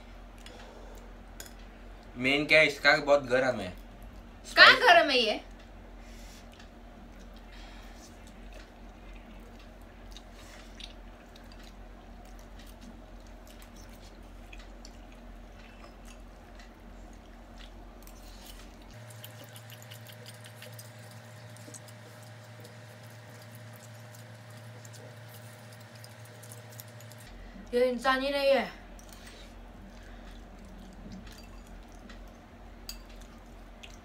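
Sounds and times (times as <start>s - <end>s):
noodles slurped and chewed: 17.1s - 27.3s.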